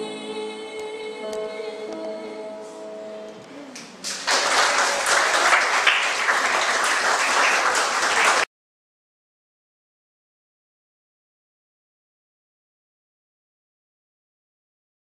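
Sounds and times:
song with backing music: 0:00.0 - 0:04.0
audience applauding: 0:04.0 - 0:08.5.

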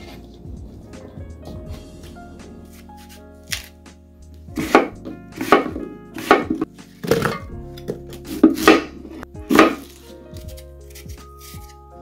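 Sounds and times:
faint background music: 0:00.0 - 0:12.0
knife chopping on cutting board: 0:04.6 - 0:07.4, 0:08.2 - 0:11.7.

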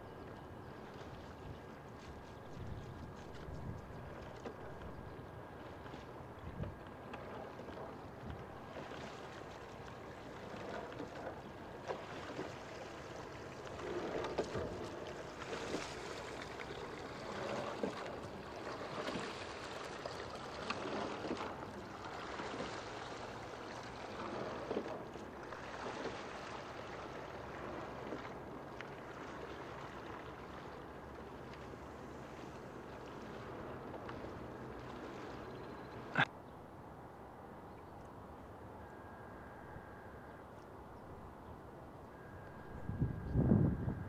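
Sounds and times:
paddles splashing in water: 0:00.8 - 0:36.3.

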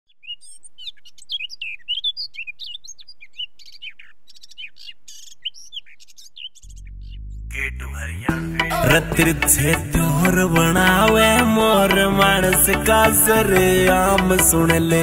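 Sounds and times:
small birds chirping and singing: 0:00.1 - 0:07.7.

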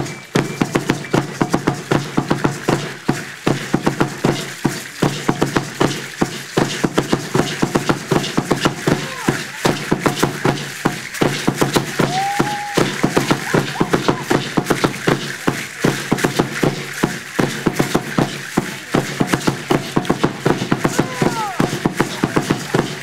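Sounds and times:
drum beating fast: 0:00.0 - 0:23.0
seed-pod ankle rattles shaking: 0:00.0 - 0:23.0
dancers stamping: 0:00.4 - 0:23.0.

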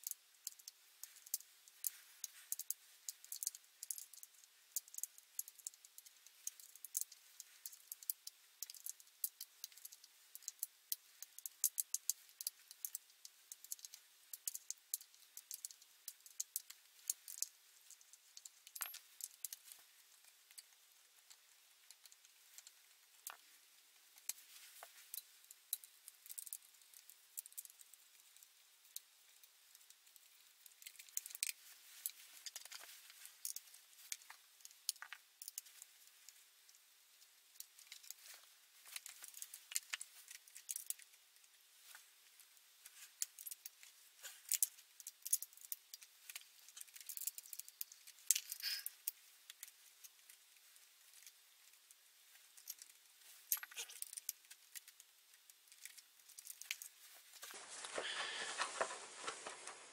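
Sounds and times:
metallic clicks of hand tools: 0:48.3 - 0:49.0.

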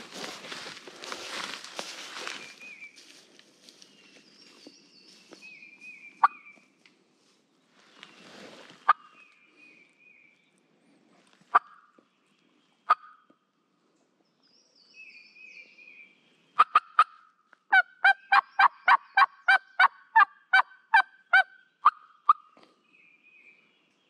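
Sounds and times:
songbird singing faintly: 0:00.0 - 0:19.9, 0:21.1 - 0:24.0
turkey call yelps: 0:16.6 - 0:22.5.

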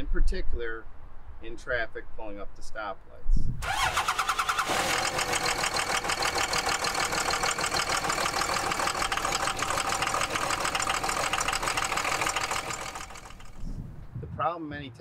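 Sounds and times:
diesel engine idling with clatter: 0:03.6 - 0:13.7.

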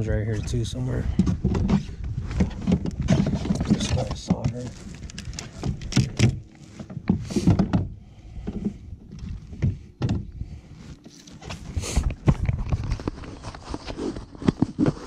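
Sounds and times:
knocks and thumps on kayak hull: 0:01.1 - 0:10.3
fish flapping and rustling: 0:01.7 - 0:06.9.

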